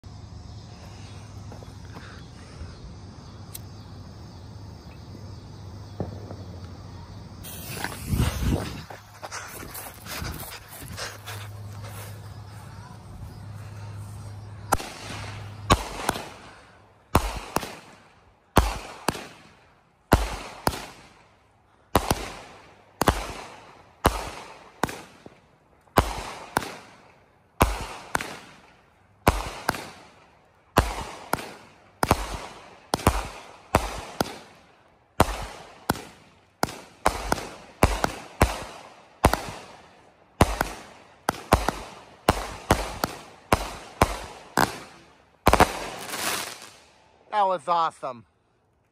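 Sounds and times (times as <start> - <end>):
firework bangs with echo: 5.9 - 6.5, 14.6 - 21.2, 21.9 - 46.9.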